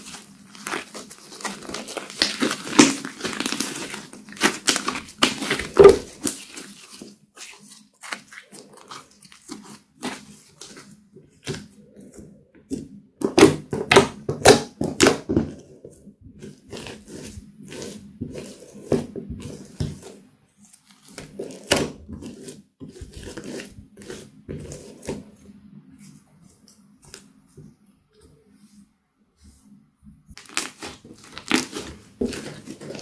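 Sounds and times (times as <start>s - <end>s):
slime squishing and popping: 1.6s - 6.6s, 30.4s - 33.0s.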